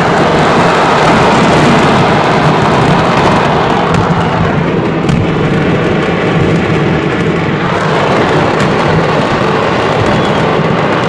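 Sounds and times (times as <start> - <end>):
car road noise: 0.0 - 11.0
fireworks roaring and crackling: 0.0 - 11.0
sharp firework cracks: 0.0 - 11.0.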